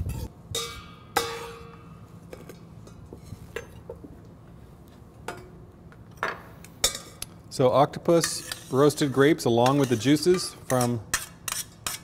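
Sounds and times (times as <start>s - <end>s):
metal kitchenware clinking: 0.1s - 1.8s, 6.2s - 7.2s, 8.2s - 12.0s.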